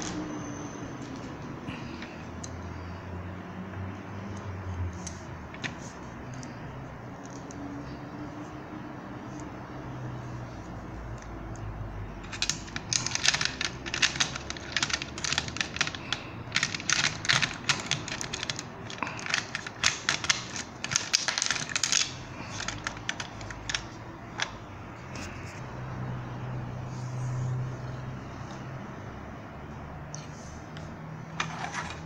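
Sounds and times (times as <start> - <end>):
plastic toy clicks and rattles: 12.2 - 24.6.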